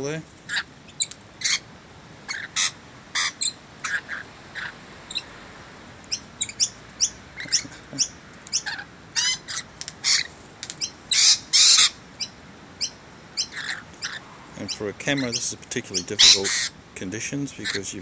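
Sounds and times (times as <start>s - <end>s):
birds calling: 0.0s - 5.4s, 6.0s - 18.0s
harsh bird screeches: 0.5s - 5.3s, 8.5s - 16.8s, 17.6s - 18.0s.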